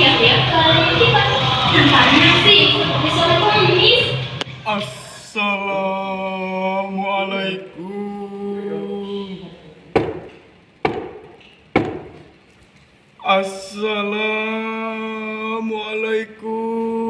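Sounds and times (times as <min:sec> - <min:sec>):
man singing long notes: 0:04.7 - 0:09.8, 0:13.8 - 0:17.0
knocks on wooden door: 0:10.0 - 0:10.3, 0:10.9 - 0:12.3.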